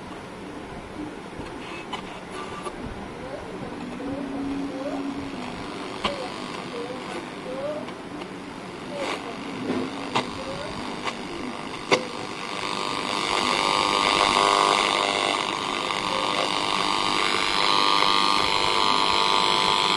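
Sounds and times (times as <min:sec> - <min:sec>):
radio static hiss: 0:00.0 - 0:19.9
radio clicks: 0:01.4 - 0:02.8, 0:03.6 - 0:19.9.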